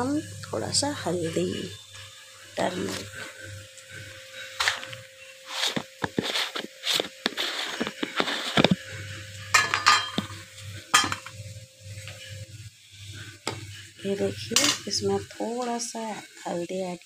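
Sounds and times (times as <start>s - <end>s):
metal spatula scraping a pan: 4.0s - 12.4s, 13.0s - 15.2s.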